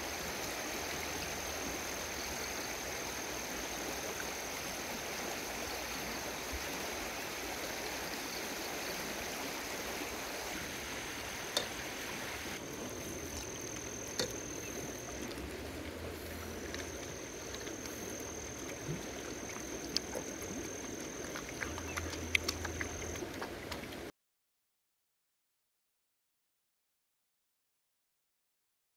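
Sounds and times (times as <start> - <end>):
flowing water: 0.0 - 24.1
puppies eating clicks and smacks: 12.6 - 24.1.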